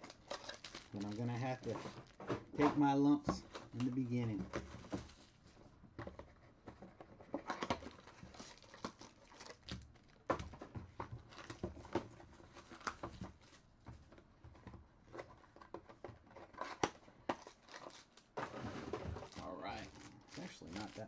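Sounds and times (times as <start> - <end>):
foil packs crinkling: 0.0 - 5.3, 7.4 - 10.3, 11.2 - 12.0, 16.8 - 21.0.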